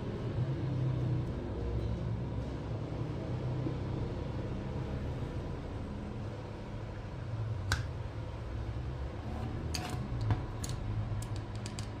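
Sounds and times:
small metal clicks and taps: 9.8 - 12.0.

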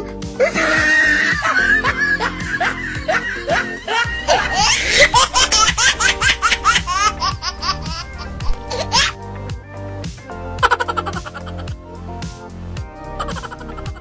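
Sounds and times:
background music with bass: 0.0 - 14.0
high-pitched laughter: 0.4 - 9.2, 10.6 - 11.7, 13.2 - 14.0.

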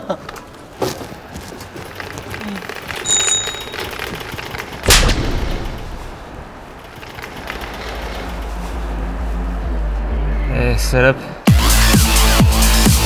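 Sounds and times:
bicycle bell ringing: 3.0 - 4.2
loud sharp bang: 4.9 - 6.5.

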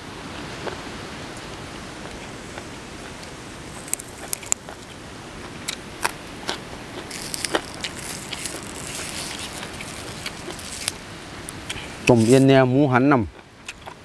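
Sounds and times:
greens crackling and snapping: 3.1 - 12.5
crisp bites and crunches: 6.0 - 11.0.

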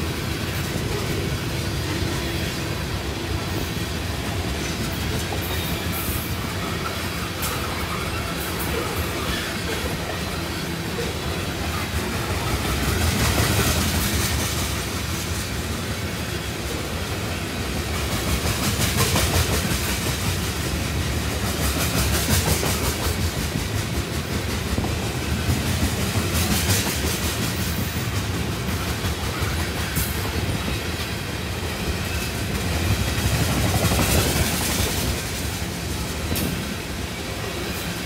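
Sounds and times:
train wheels rumbling on rails: 0.0 - 38.0.

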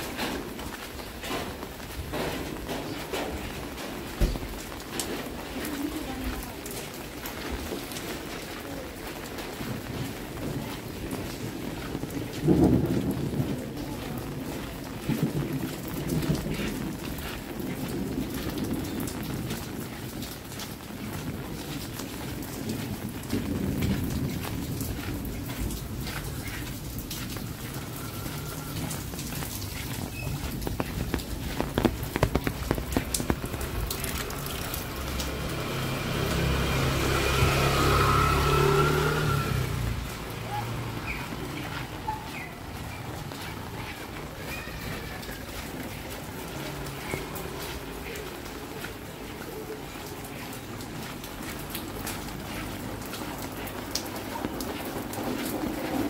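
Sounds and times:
rain falling: 0.0 - 56.0
sharp ticks of water: 16.0 - 37.4
vehicle engine: 27.1 - 42.0.

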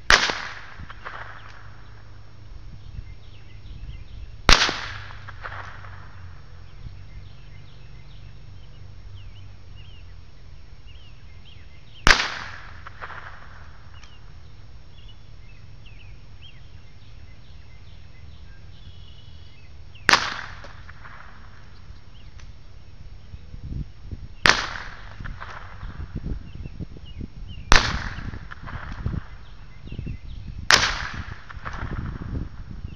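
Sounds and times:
faint birdsong: 0.8 - 32.9
gunshots with echo: 12.0 - 13.8.

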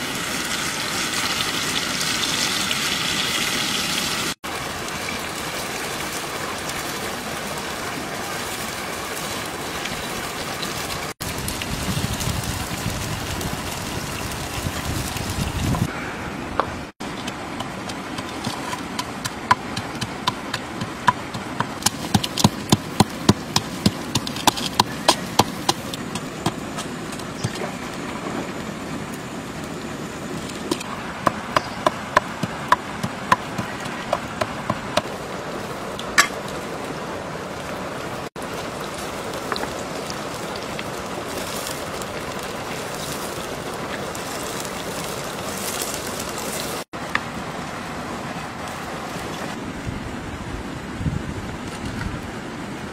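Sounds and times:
mushrooms sizzling in hot oil: 0.0 - 15.9, 38.3 - 46.9
oil crackling and popping: 8.2 - 15.9, 17.0 - 28.4, 38.4 - 47.2.

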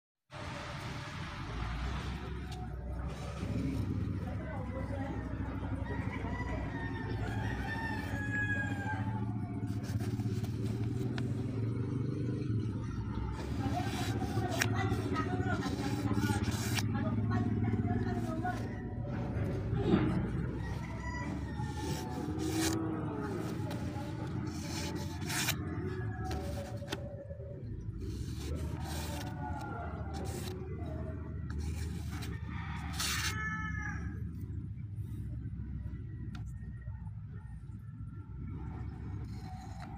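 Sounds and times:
low background rumble: 2.2 - 39.9
rooster crowing: 5.5 - 11.0, 18.5 - 27.0, 31.6 - 34.3
paper rustling: 9.6 - 11.6, 13.3 - 27.2, 28.0 - 33.4.

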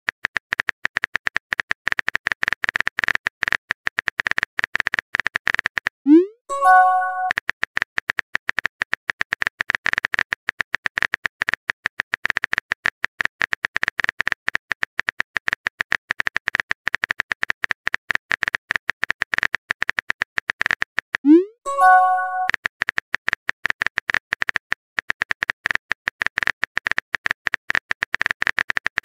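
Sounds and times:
message chime: 6.1 - 7.3, 21.3 - 22.5.

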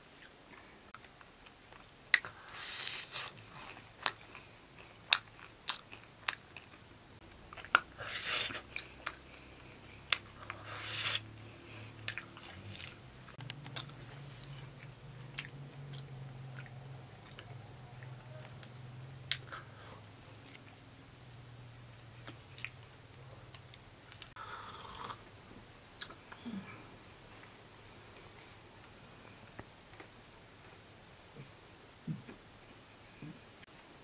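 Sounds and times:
people chewing crisp pastries: 0.0 - 25.3, 25.9 - 30.8
mouth sounds: 10.0 - 11.4.

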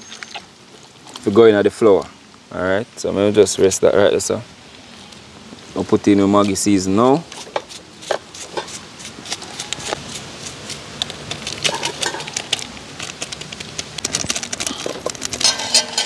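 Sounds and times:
hands squelching raw chicken: 7.3 - 15.4.

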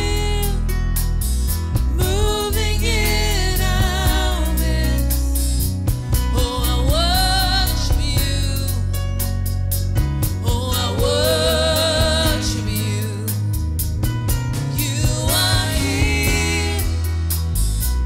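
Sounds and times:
woman singing: 0.0 - 0.7, 2.0 - 5.4, 6.3 - 8.9, 10.4 - 13.4, 14.8 - 17.1
accompaniment with deep bass: 0.0 - 18.0.

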